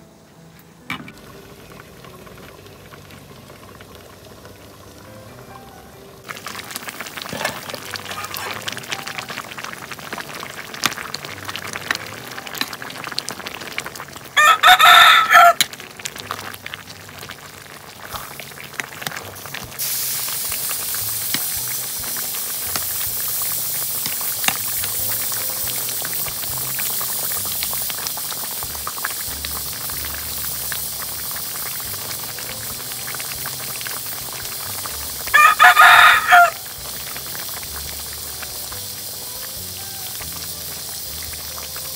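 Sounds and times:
soup bubbling in a pot: 1.0s - 41.9s
rooster crowing: 14.4s - 15.6s, 35.3s - 36.6s
steady hiss: 16.9s - 35.3s, 36.4s - 41.9s.

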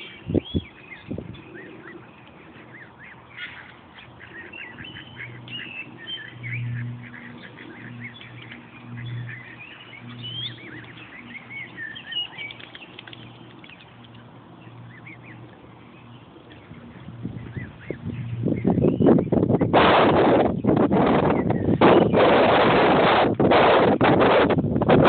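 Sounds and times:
bird peeps and chirps: 0.0s - 19.7s
low hum: 0.0s - 25.0s.

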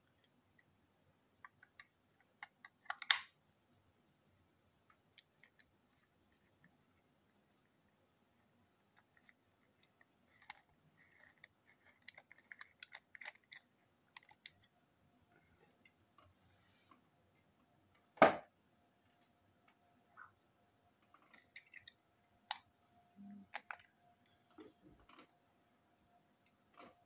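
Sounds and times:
faint steady hum: 0.0s - 27.0s
plastic clicks and scrapes: 8.9s - 14.7s, 23.4s - 23.9s.

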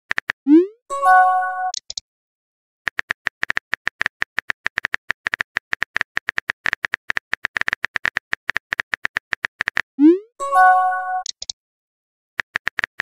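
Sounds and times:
phone keyboard typing clicks: 2.9s - 9.9s, 11.2s - 11.6s, 12.4s - 13.0s.

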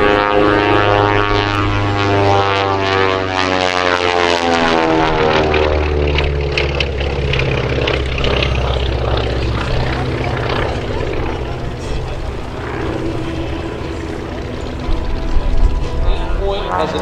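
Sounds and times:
propeller plane droning overhead: 0.0s - 17.0s.

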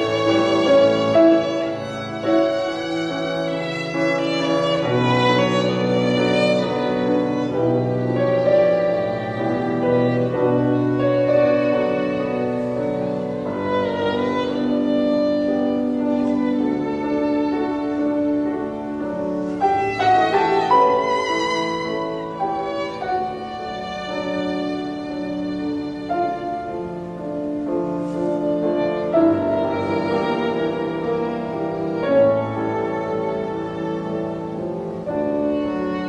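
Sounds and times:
instrumental music: 0.0s - 36.0s.

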